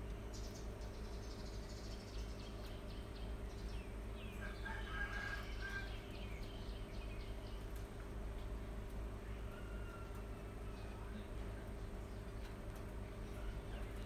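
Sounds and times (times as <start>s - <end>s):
rabbits chewing: 0.0s - 14.0s
steady low hum: 0.0s - 14.0s
bird chirping: 0.2s - 8.6s.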